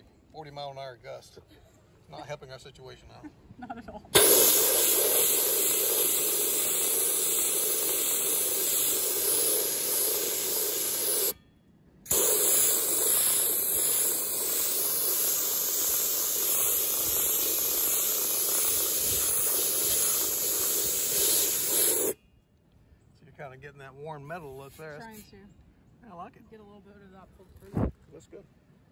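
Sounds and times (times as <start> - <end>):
abrasive blaster hissing: 4.1 - 11.4, 12.1 - 22.2.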